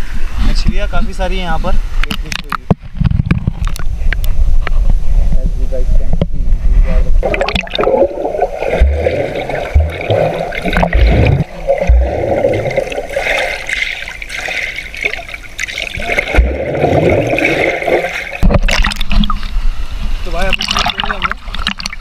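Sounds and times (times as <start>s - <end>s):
dull low thumps: 6.0s - 13.0s, 16.2s - 17.5s
muffled water sloshing underwater: 6.0s - 22.0s.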